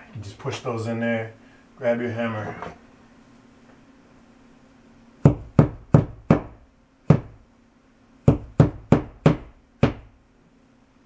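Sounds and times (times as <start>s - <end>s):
hammer tapping nail: 5.3s - 7.4s, 8.3s - 10.1s.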